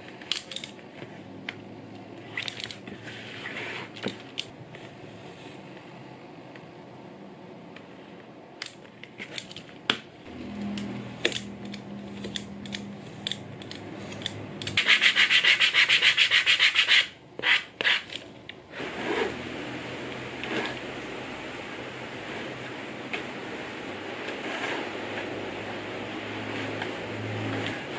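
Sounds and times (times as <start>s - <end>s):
sandpaper rubbing leather: 14.8s - 18.1s.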